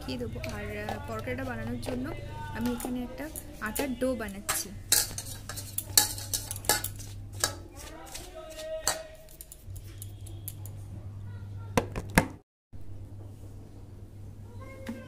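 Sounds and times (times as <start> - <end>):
hand working flour in bowl: 0.0 - 10.6
clinks against metal bowl: 2.6 - 10.8.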